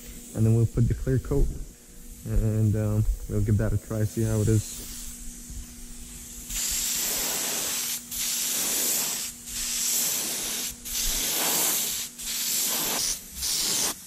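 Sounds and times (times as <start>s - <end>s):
spray gun hissing: 4.2s - 14.0s.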